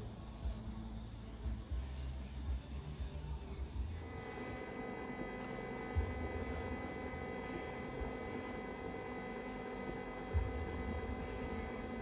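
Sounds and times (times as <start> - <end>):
rotating beacon motor hum: 4.0 - 12.0.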